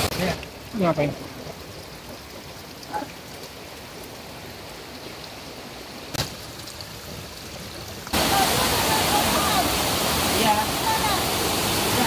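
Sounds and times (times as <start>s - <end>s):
rushing mountain stream: 0.0s - 12.0s
water trickling over rocks: 0.0s - 12.0s.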